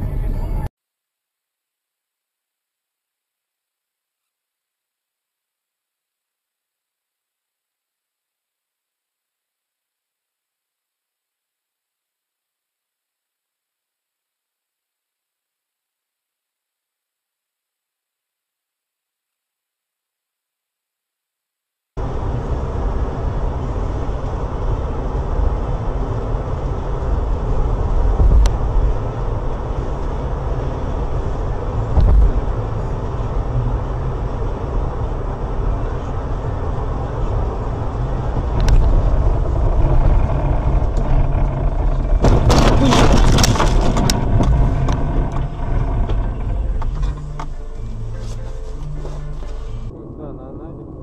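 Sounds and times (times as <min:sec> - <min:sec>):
car road and engine rumble: 0:00.0 - 0:00.7, 0:22.0 - 0:51.0
sharp knocks and rattles: 0:38.7 - 0:47.6.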